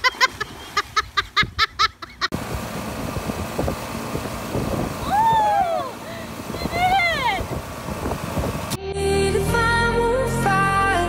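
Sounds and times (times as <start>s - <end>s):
wind: 0.0s - 11.0s
outboard motor running: 2.3s - 8.8s
rushing water: 2.4s - 8.7s
loud drawn-out shout: 5.0s - 6.0s.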